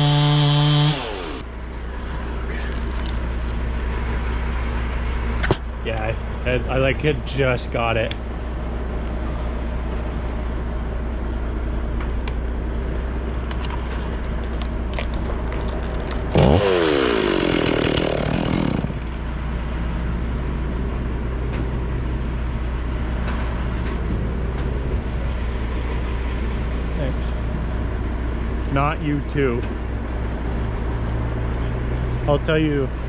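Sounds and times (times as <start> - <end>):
chainsaw cutting through trunk: 0.0 - 1.4, 15.0 - 19.0
chainsaw idling: 0.0 - 1.4, 14.4 - 19.1.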